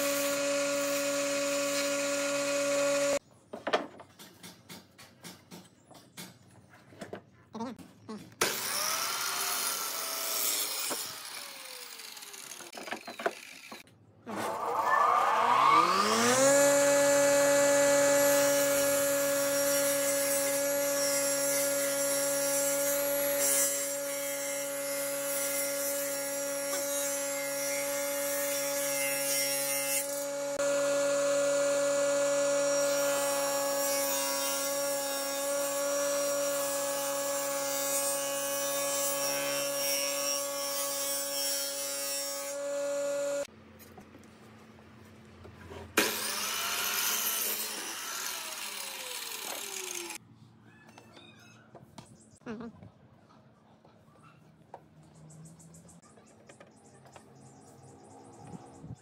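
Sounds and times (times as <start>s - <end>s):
circular saw whining: 0.0s - 3.2s, 8.4s - 43.5s, 46.0s - 50.2s
miter saw motor starting: 8.4s - 19.6s, 46.0s - 50.2s.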